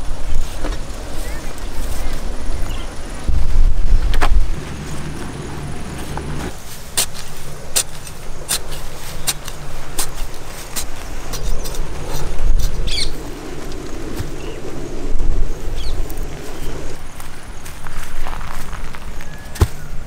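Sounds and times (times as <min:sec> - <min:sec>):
low rumble: 0:00.0 - 0:06.6
machete chopping into turf: 0:19.5 - 0:19.9.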